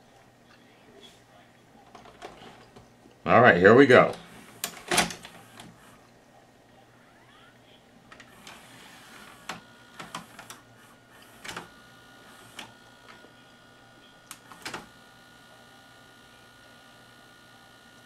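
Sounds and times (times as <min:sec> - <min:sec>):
faint steady whine: 0:00.0 - 0:18.0
cassette mechanism clicks and clunks: 0:04.1 - 0:05.8, 0:09.3 - 0:11.8, 0:14.3 - 0:14.9.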